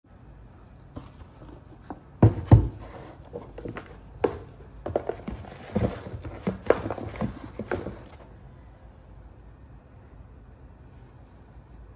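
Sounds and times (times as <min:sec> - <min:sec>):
cardboard and paper rustling: 0:00.9 - 0:08.4
cardboard box thumping down: 0:01.8 - 0:08.2.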